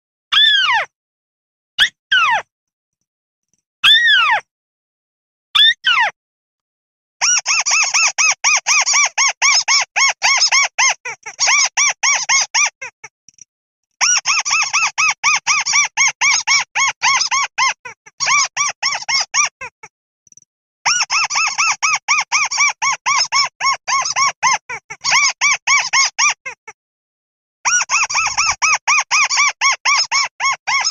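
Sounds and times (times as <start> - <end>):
rail calling with squeaky notes: 27.7 - 30.9.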